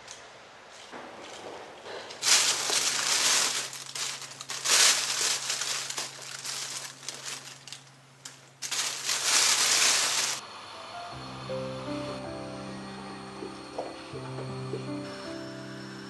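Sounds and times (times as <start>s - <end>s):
plastic packaging crinkling: 1.9s - 10.4s.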